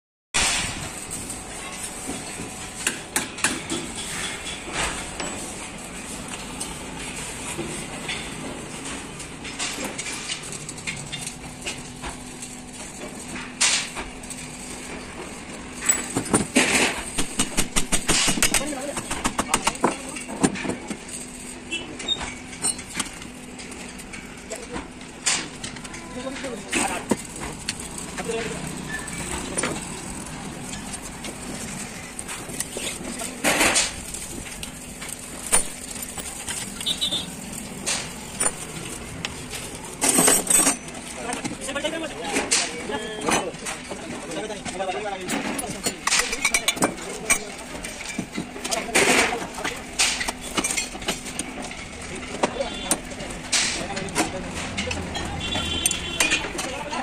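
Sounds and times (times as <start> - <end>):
metal bolts and tools clinking: 32.3 - 41.6, 45.3 - 56.8.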